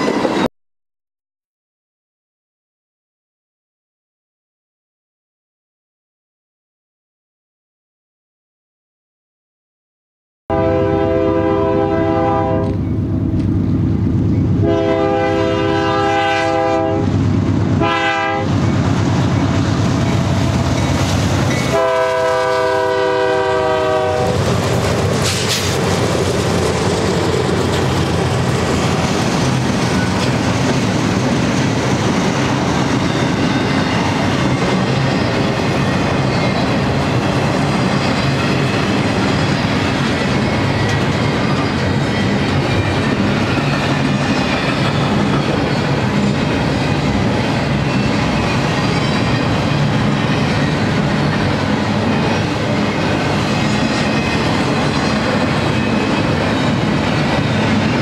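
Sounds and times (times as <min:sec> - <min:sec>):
locomotive air horn blasts: 0:10.5 - 0:12.8, 0:14.6 - 0:17.1, 0:17.8 - 0:18.5, 0:21.6 - 0:24.4
train wheels rumbling and clacking: 0:12.6 - 0:58.0.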